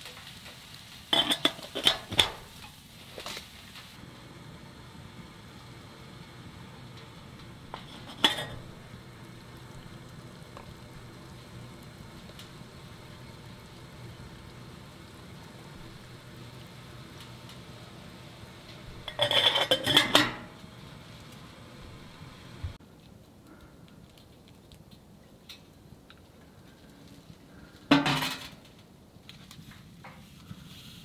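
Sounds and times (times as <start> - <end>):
kettle lid clattering: 1.1 - 2.4, 7.7 - 8.8, 19.0 - 20.6
kettle lid metallic clink: 1.2 - 2.4, 7.7 - 8.7, 19.0 - 20.6.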